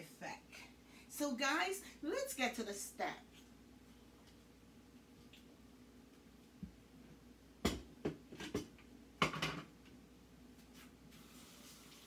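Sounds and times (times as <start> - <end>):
kitchenware knocks and clinks: 7.6 - 9.7
kitchenware clatter: 7.7 - 9.7.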